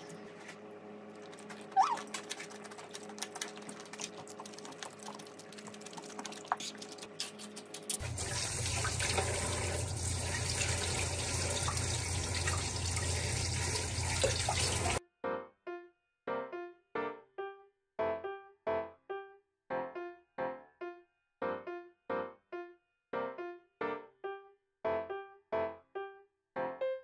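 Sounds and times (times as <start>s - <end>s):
faucet running into sink: 8.0s - 15.0s.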